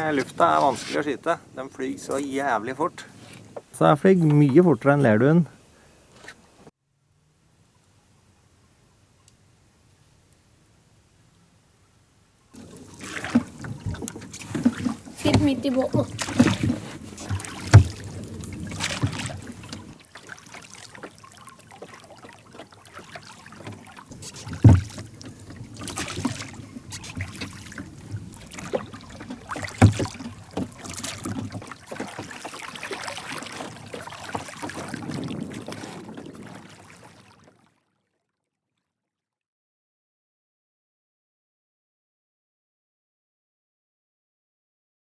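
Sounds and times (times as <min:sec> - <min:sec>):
oars working the water: 0:00.0 - 0:06.7, 0:12.5 - 0:38.3
wind: 0:00.0 - 0:38.1
sharp knocks on a boat: 0:12.6 - 0:20.0, 0:22.9 - 0:36.6.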